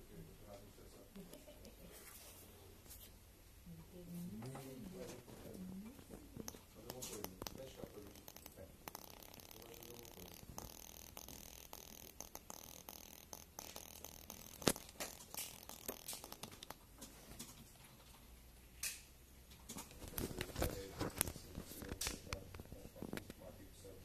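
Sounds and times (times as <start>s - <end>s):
small clicks and taps: 5.9s - 23.4s.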